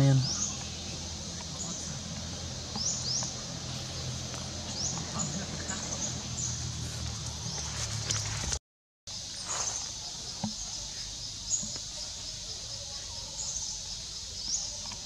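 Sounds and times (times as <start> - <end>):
bird chirps: 0.0 - 8.4, 9.2 - 15.0
high-pitched insect chorus: 0.0 - 8.4, 9.1 - 15.0.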